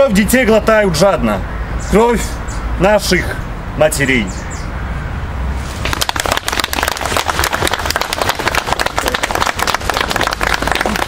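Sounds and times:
crowd applauding: 0:05.8 - 0:11.0.

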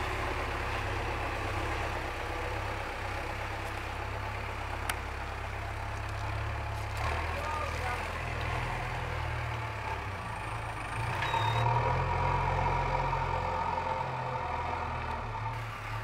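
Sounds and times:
diesel engine under load: 0:00.0 - 0:16.0
hydraulic whine: 0:11.1 - 0:11.8.

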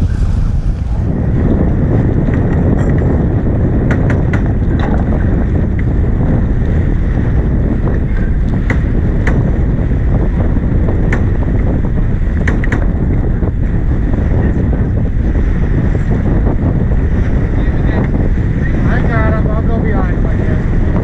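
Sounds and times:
water rushing along hull: 0:00.0 - 0:21.0
wind buffeting microphone: 0:00.0 - 0:21.0.

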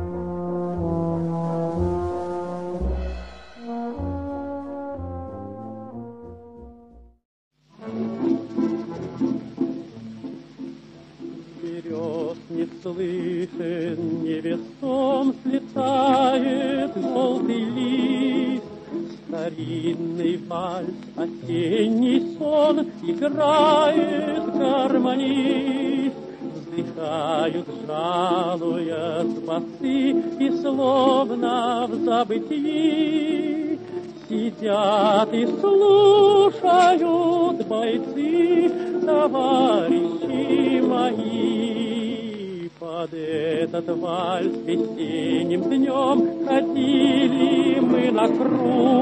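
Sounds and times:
sustained instrumental accompaniment: 0:00.0 - 0:07.2
person singing with wide vibrato: 0:02.8 - 0:04.6, 0:11.6 - 0:49.0.

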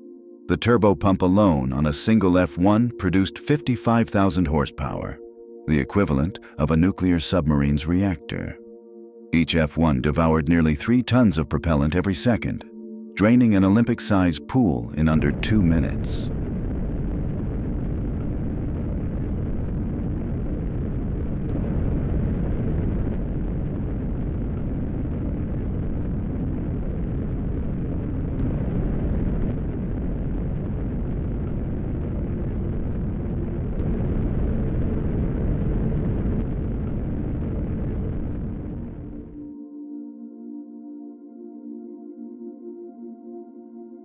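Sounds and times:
rocket engine roar: 0:15.0 - 0:39.4.

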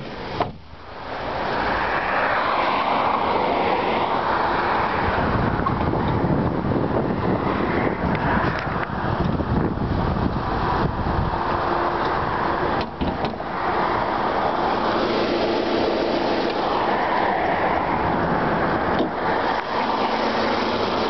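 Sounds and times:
wind rumble on microphone: 0:00.0 - 0:21.0
fan whir: 0:08.0 - 0:17.1
car engine idling: 0:08.8 - 0:21.0.

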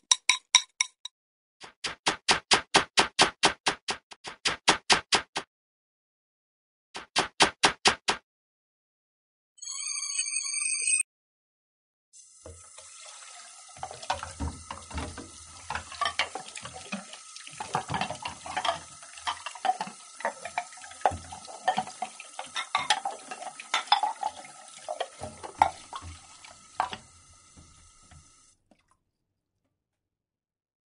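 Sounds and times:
water running: 0:12.2 - 0:28.8
dishes clattering in a sink: 0:13.8 - 0:28.2.

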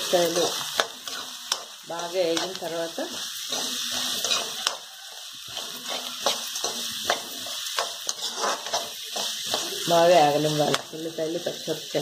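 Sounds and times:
onions sizzling in hot oil: 0:00.0 - 0:12.0
wooden spatula scraping a pan: 0:05.4 - 0:10.8.

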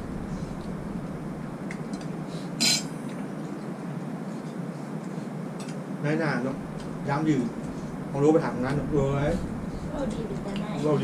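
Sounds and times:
low room hum: 0:00.0 - 0:11.0
utensils clinking against bowls: 0:01.9 - 0:03.0.

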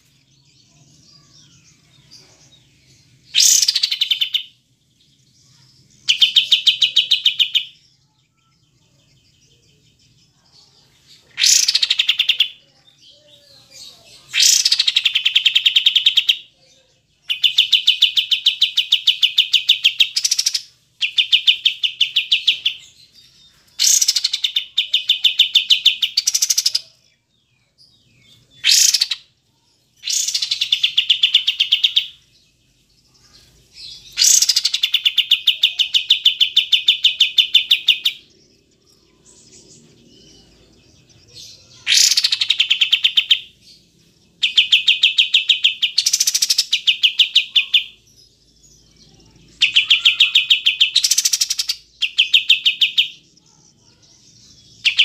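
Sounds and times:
bird singing rattling trills: 0:30.0 - 0:55.0.

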